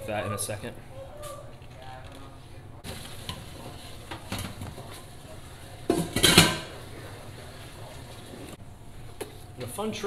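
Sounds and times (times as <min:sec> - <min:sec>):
metal pot clattering into base: 0:05.9 - 0:06.7.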